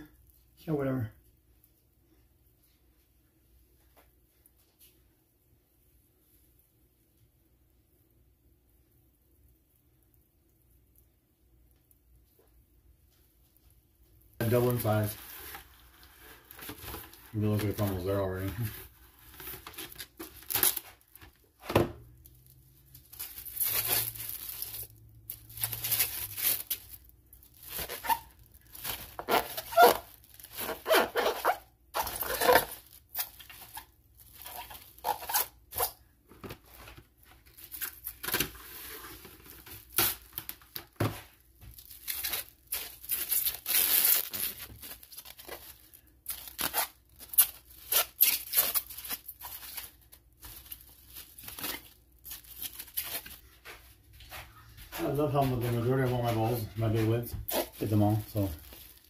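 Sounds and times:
plastic cling wrap crinkling: 14.2s - 53.7s, 55.0s - 59.0s.

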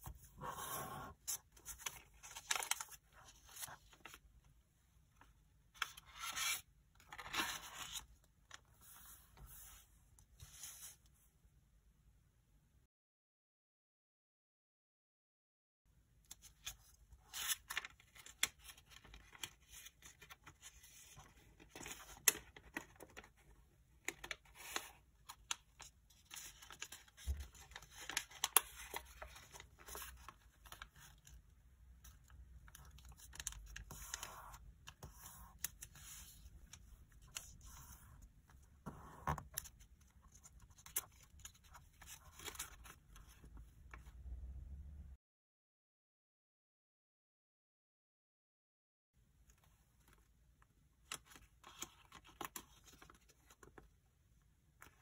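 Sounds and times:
paper rustling and crinkling: 1.2s - 4.4s, 5.8s - 11.0s, 16.3s - 44.1s, 51.0s - 53.9s.

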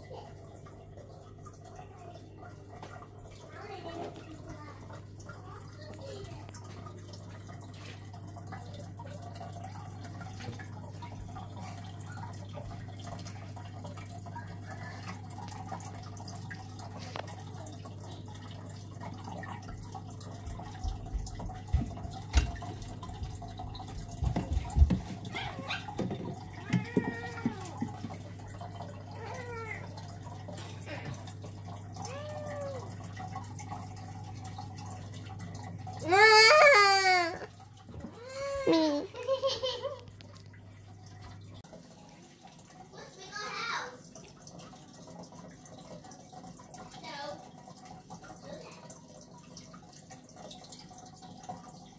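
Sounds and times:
water dripping and trickling: 0.0s - 51.9s.

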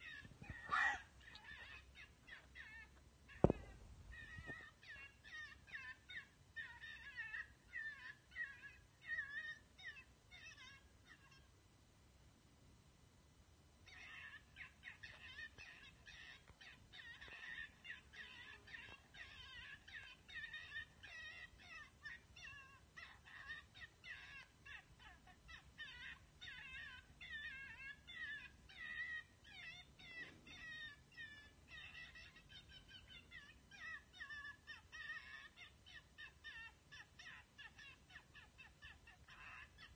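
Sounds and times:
high squealing distress cries: 0.0s - 11.4s, 13.9s - 39.9s.

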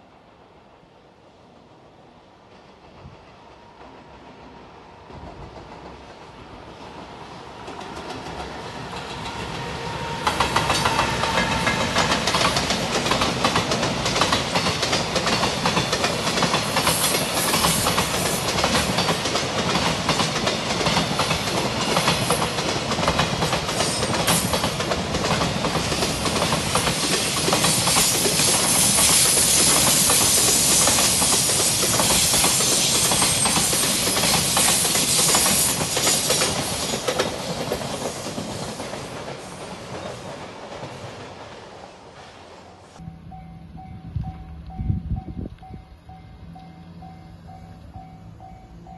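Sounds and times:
train wheels clattering over rail joints: 7.6s - 42.4s.

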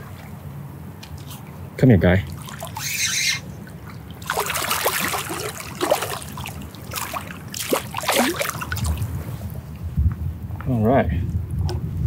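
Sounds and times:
fish splashing in water: 2.3s - 9.3s.

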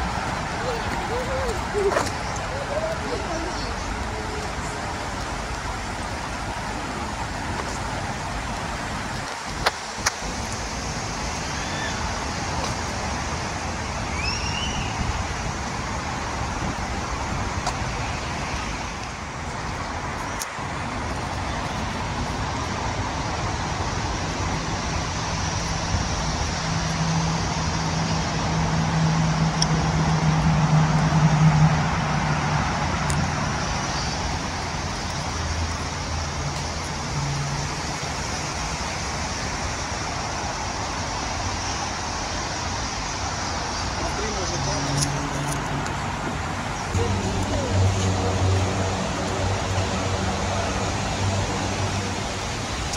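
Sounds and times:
road traffic hum: 0.0s - 52.9s
vehicle engine passing: 44.0s - 52.8s.

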